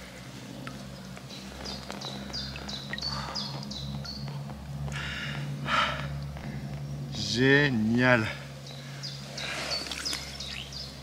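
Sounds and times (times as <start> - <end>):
small bird singing: 0.8 - 4.6, 6.7 - 11.0.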